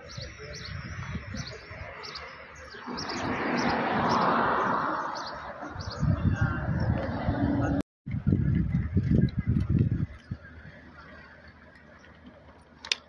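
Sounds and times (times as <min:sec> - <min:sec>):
small birds chirping: 0:00.0 - 0:07.2, 0:08.4 - 0:12.8
car driving past: 0:02.4 - 0:07.8.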